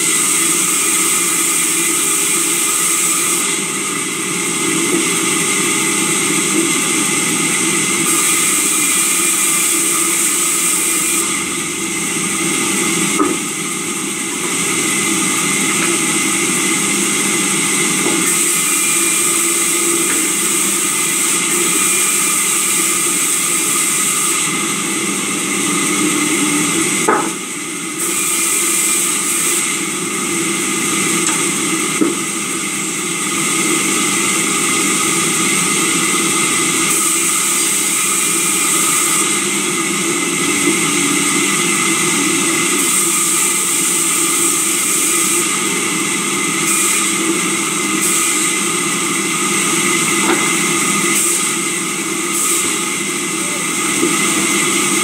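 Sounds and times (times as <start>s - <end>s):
sawmill saw cutting timber: 0.0s - 55.0s
wood knocks: 13.2s - 13.4s, 27.1s - 27.4s.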